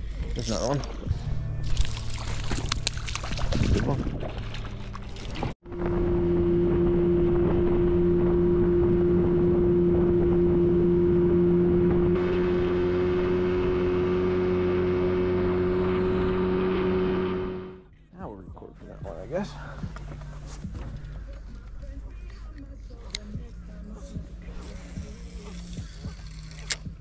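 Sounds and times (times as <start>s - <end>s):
outboard motor running: 0.0s - 17.9s
water noise: 0.0s - 17.9s.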